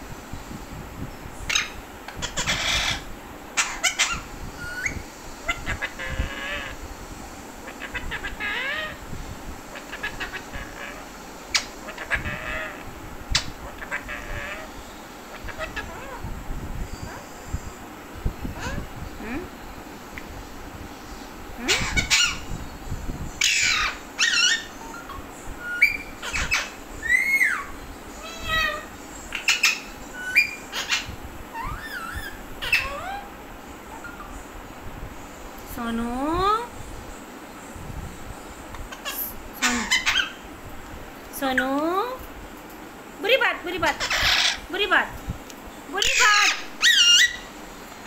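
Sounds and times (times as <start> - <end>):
parakeets screeching: 1.5 - 6.8, 7.6 - 9.1, 9.7 - 16.3, 18.5 - 18.9, 21.6 - 22.6, 23.4 - 34.5, 38.8 - 40.4, 43.7 - 45.0, 45.9 - 47.6
parakeets whistling and chattering: 1.5 - 6.8, 7.6 - 9.0, 9.7 - 16.3, 21.6 - 22.6, 23.4 - 34.4, 38.8 - 40.4, 43.8 - 44.7, 46.0 - 47.6.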